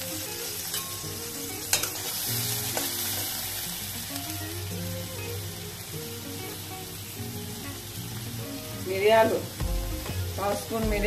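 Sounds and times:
food sizzling in hot oil: 0.0s - 11.0s
steel spatula stirring: 0.5s - 3.6s.

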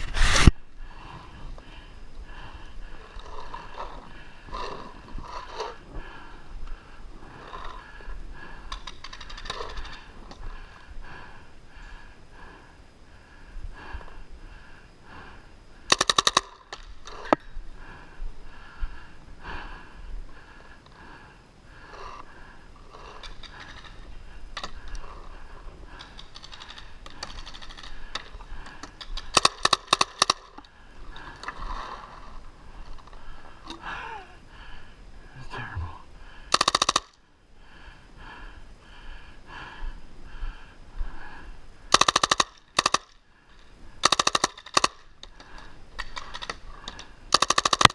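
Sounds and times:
paintball marker firing: 41.9s - 43.1s, 44.0s - 45.0s, 47.3s - 47.9s.

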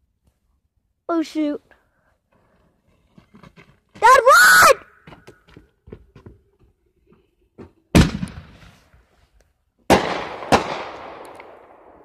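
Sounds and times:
fireworks bangs: 7.9s - 8.9s, 9.9s - 12.0s.

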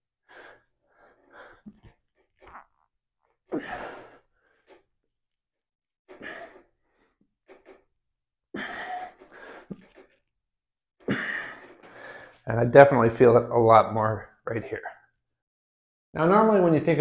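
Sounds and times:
man breathing hard: 11.1s - 12.4s.

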